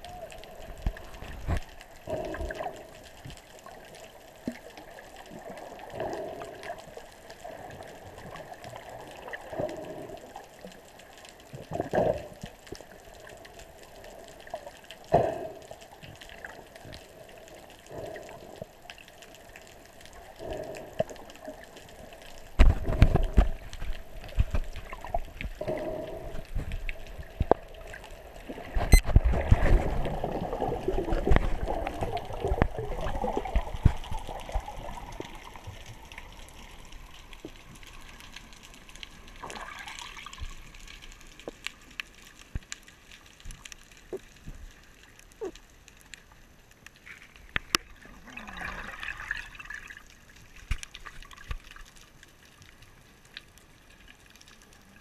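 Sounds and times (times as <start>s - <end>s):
water splashing and sloshing: 0.0s - 55.0s
sharp underwater clicks: 9.3s - 28.1s, 30.9s - 47.9s, 50.5s - 54.8s.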